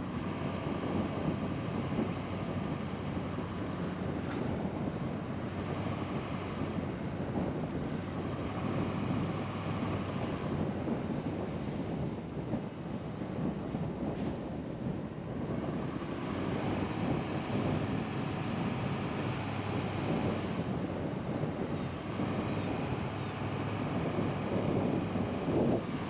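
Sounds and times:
tyre and road noise: 0.0 - 26.0
wind on microphone: 0.0 - 26.0.

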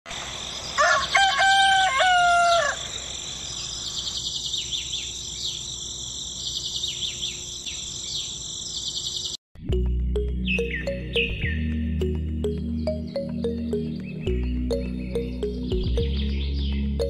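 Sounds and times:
rooster crowing: 0.8 - 3.0
small birds chirping: 2.4 - 9.4, 10.2 - 17.0.

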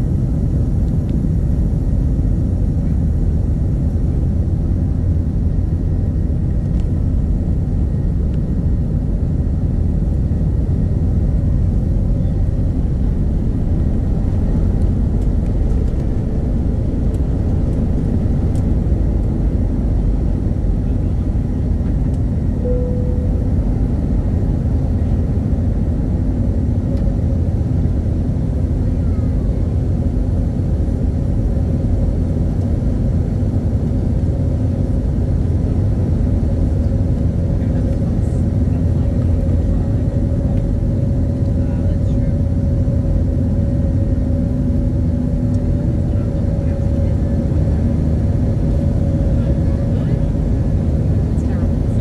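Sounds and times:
jet cabin engine rumble: 0.0 - 52.0
thin tone: 22.6 - 23.6.

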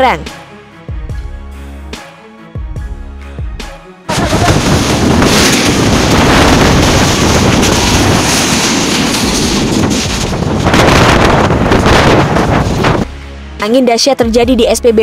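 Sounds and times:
storm wind blasting microphone: 4.1 - 13.1.

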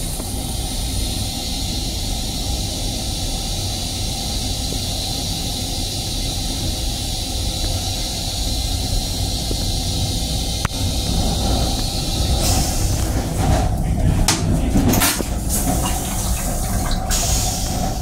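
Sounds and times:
toilet flush hiss: 0.0 - 18.0
water rinsing steel bowl: 13.0 - 18.0.

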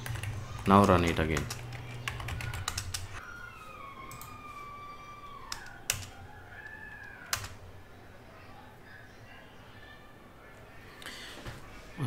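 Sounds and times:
computer keyboard typing: 0.0 - 3.2, 5.5 - 7.7.

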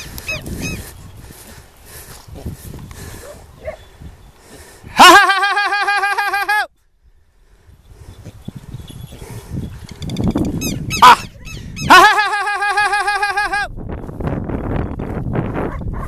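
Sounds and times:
bird alarm calls: 9.9 - 11.9.

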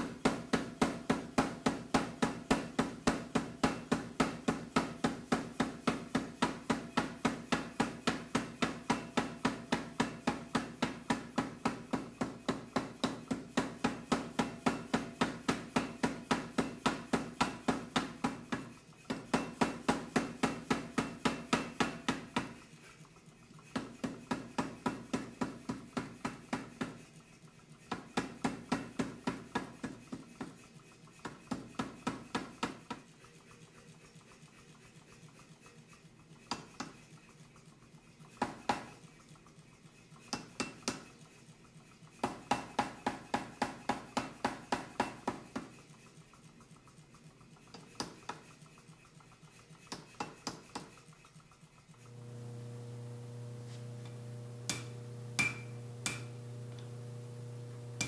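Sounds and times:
power hammer striking hot steel: 52.1 - 58.0.

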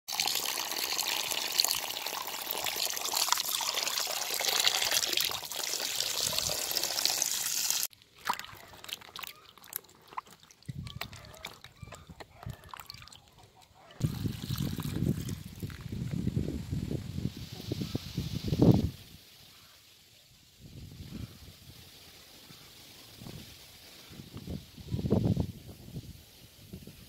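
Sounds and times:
water pouring and splashing: 0.1 - 13.4, 14.0 - 17.5
small splashes of hands rinsing: 6.2 - 11.8.

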